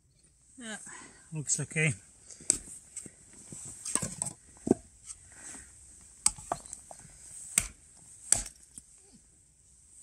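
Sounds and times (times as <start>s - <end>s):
knife chopping wood on log: 7.6s - 8.6s.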